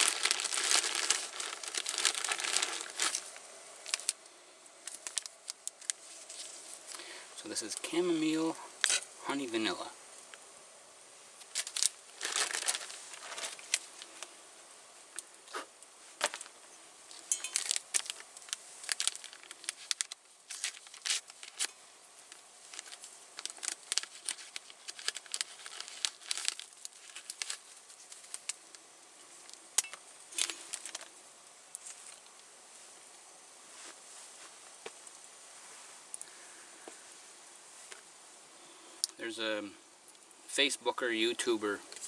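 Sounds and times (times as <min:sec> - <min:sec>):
paper sachet tearing and crinkling: 0:00.0 - 0:04.2, 0:04.8 - 0:07.0, 0:11.4 - 0:14.3, 0:17.1 - 0:28.6, 0:30.3 - 0:31.1.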